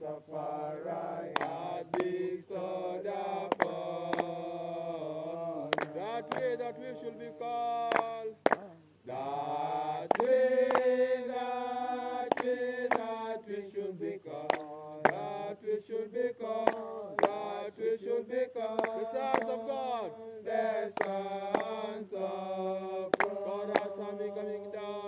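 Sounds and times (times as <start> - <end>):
voices chanting in held notes: 0.0 - 25.0.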